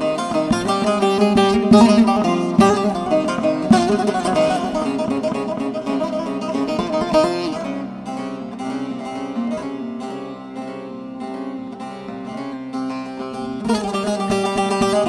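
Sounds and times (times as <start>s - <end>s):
plucked string instrumental music: 0.0s - 15.0s.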